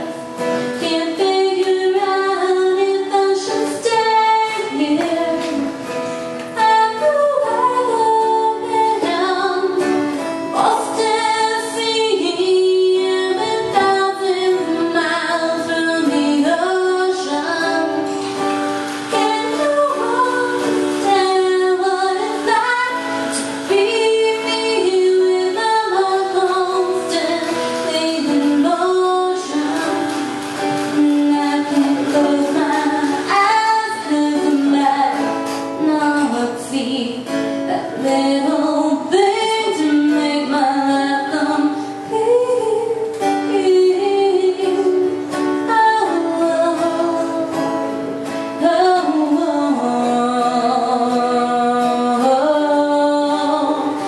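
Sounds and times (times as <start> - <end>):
acoustic guitar: 0.0 - 54.0
woman singing: 0.0 - 54.0.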